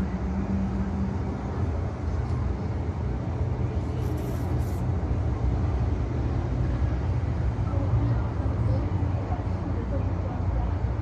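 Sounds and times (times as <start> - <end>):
low outdoor rumble: 0.0 - 11.0
brief hiss: 3.9 - 4.9.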